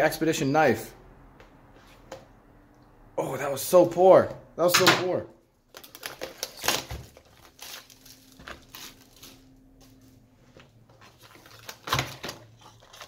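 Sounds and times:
plastic wrap crinkling and tearing: 5.6 - 9.8, 11.0 - 13.0.

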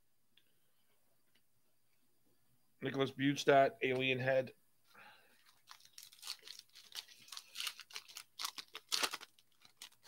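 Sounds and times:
cards rustling: 5.4 - 10.0
foil wrapper tearing: 5.5 - 10.0.

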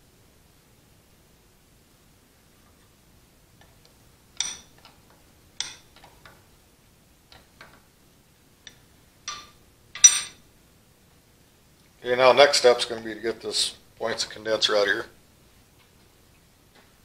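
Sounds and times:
wrench clinking on metal clamp: 4.4 - 4.8, 8.7 - 10.4.

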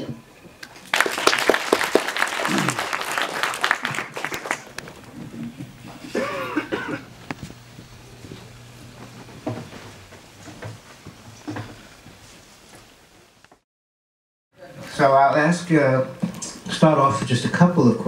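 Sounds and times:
audience applause: 0.6 - 7.2
audience rustling and knocks: 0.6 - 13.6
person coughing: 6.0 - 7.1.

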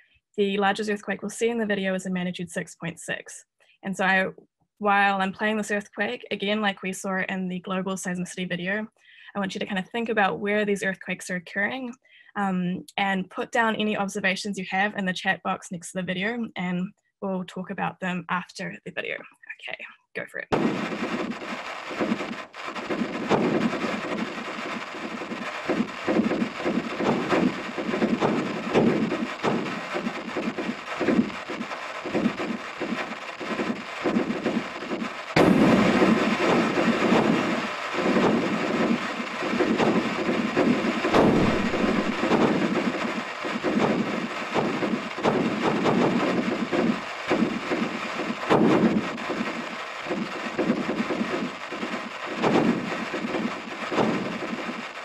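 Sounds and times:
crackling rumble: 20.3 - 55.0.

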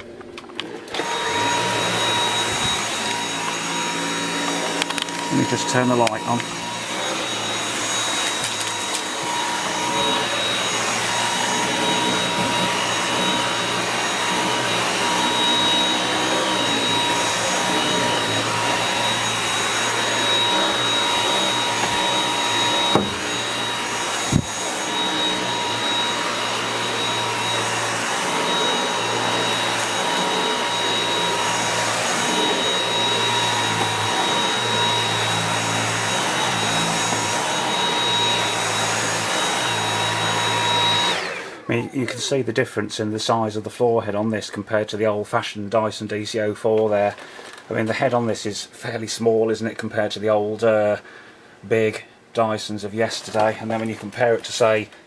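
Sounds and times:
vacuum cleaner on carpet: 0.6 - 42.4.

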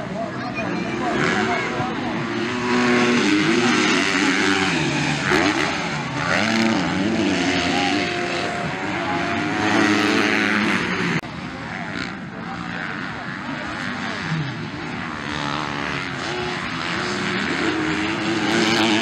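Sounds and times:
motocross bikes revving past: 0.0 - 19.0.

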